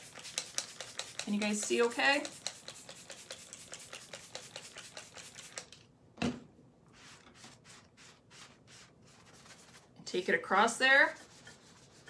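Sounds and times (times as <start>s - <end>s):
sponge scrubbing wet surface: 0.0s - 5.6s, 6.9s - 9.9s, 11.1s - 12.0s.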